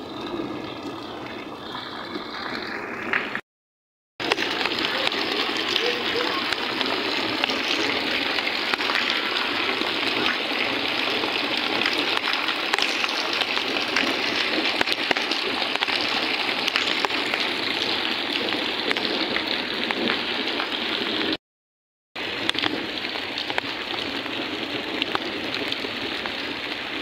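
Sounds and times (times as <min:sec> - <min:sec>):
heavy rain splashing into water: 0:00.0 - 0:03.4, 0:04.2 - 0:21.4, 0:22.2 - 0:27.0.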